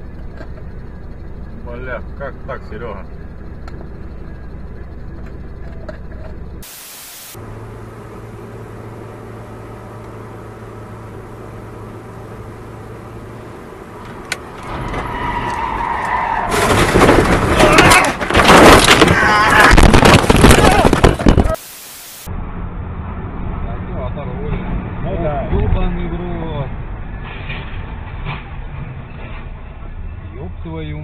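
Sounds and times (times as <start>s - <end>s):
car engine and road hum: 0.0s - 31.0s
car crash din: 16.2s - 21.6s.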